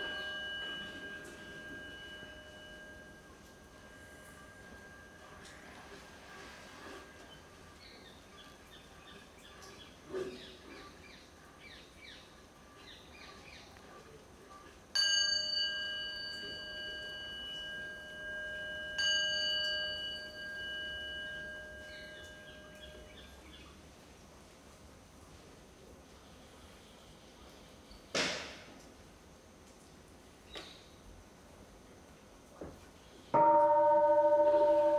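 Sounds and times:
bowl bell ringing: 0.0s - 7.2s, 15.0s - 23.2s, 33.4s - 34.9s.

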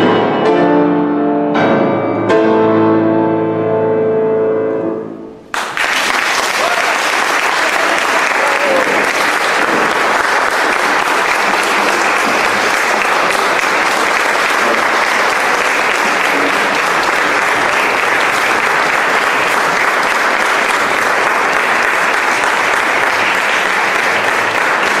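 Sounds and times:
audience applauding: 5.5s - 25.0s.

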